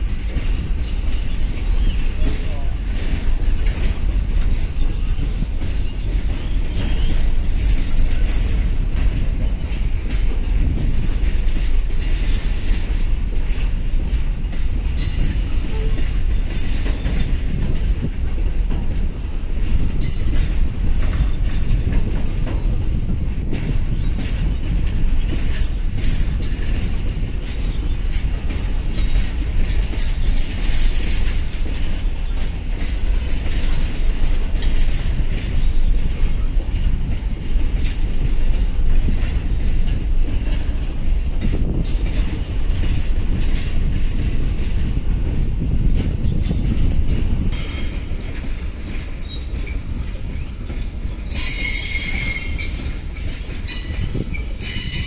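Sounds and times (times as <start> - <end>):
train wheels rumbling on track: 0.0 - 55.0
wheel squeals: 0.2 - 2.3, 4.0 - 8.3, 20.0 - 23.0, 46.2 - 55.0.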